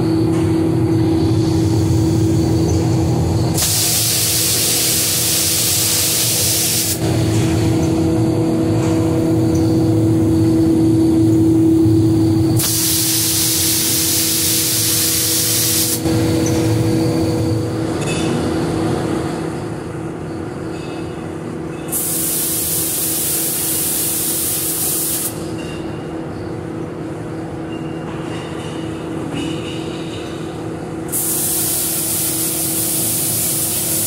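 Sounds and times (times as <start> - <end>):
steady machine hum: 0.0 - 34.0
spray guns hissing: 3.6 - 7.0, 12.6 - 16.0, 22.0 - 25.4, 31.1 - 34.0.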